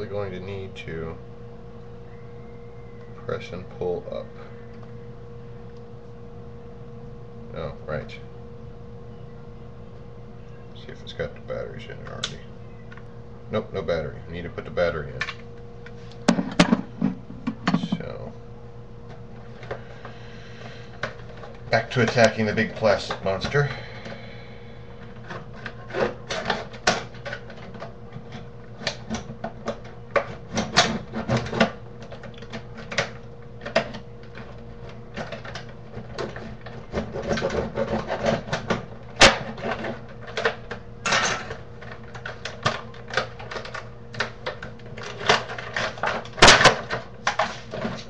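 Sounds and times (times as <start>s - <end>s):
hard plastic crackling and creaking: 25.0s - 48.0s.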